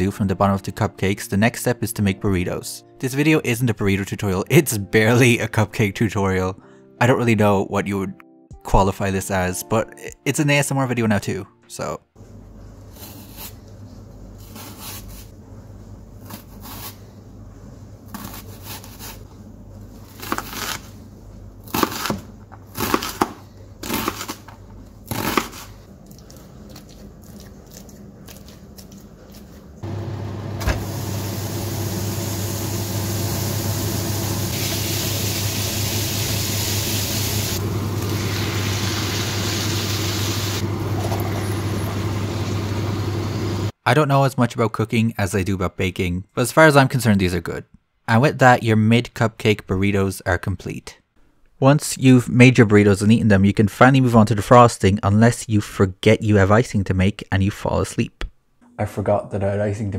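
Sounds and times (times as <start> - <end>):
meat sizzling in a pan: 30.8 - 40.6.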